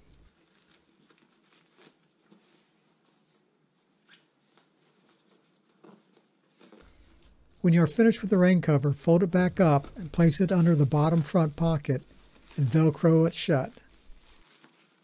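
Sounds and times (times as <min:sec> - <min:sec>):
nylon cover rustling: 0:00.0 - 0:15.0.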